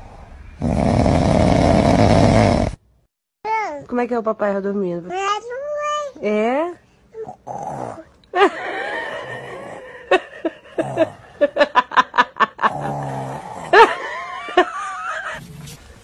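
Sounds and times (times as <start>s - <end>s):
child fake snoring: 0.6s - 2.8s, 7.2s - 8.1s, 9.2s - 9.9s, 12.7s - 13.8s.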